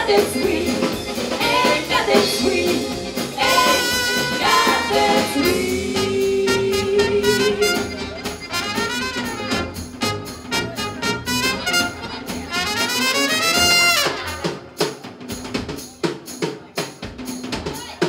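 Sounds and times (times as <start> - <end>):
women singing: 0.0 - 8.2
live swing jazz band: 0.0 - 18.0.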